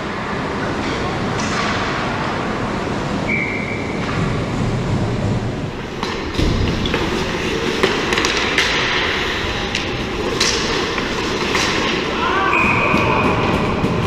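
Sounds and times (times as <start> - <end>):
steady rumbling hiss: 0.0 - 14.0
hockey sticks and puck clacking: 0.6 - 2.4, 5.8 - 14.0
skate blades scraping ice: 5.8 - 14.0.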